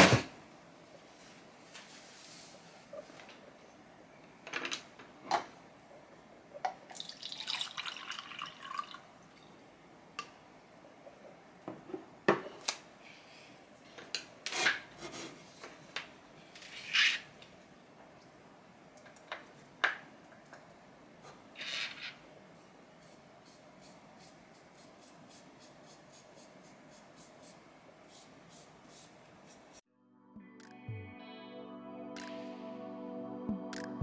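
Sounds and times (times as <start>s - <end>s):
water poured into a cup: 6.9s - 9.1s.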